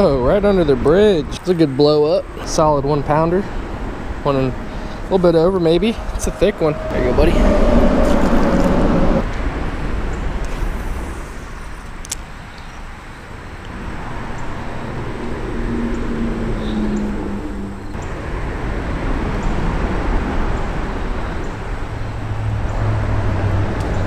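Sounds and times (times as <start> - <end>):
road traffic rumbling: 0.0 - 24.0
vehicle hum: 3.0 - 12.1.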